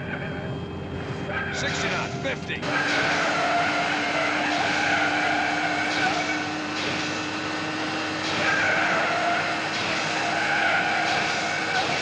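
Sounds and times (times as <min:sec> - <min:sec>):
steady low hum: 0:00.0 - 0:12.0
tyres squealing on runway: 0:02.7 - 0:06.7, 0:08.3 - 0:12.0.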